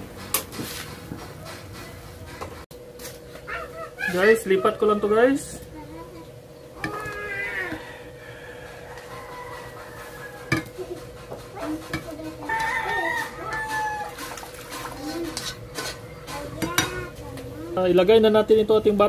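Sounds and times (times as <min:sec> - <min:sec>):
chickens clucking and crowing: 0:06.7 - 0:16.3.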